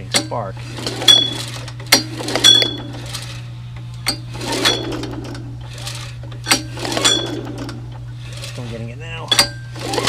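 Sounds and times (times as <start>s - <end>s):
engine crankshaft whirring: 0.0s - 10.0s.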